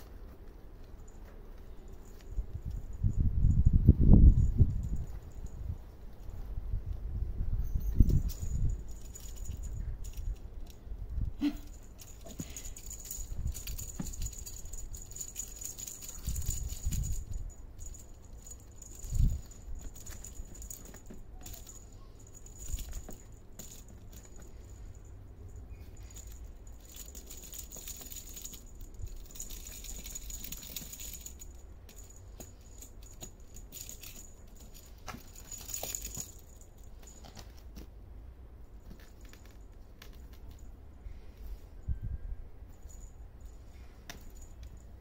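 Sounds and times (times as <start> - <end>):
tinsel and satin rustling: 7.7 - 38.0
balls clicking and rattling: 7.9 - 40.9, 42.7 - 45.0.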